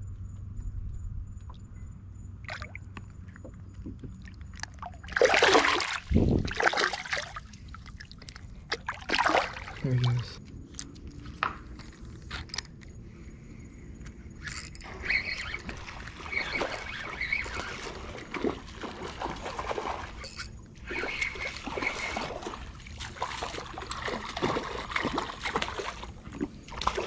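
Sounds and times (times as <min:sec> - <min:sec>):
water sloshing against boat: 0:02.4 - 0:27.0.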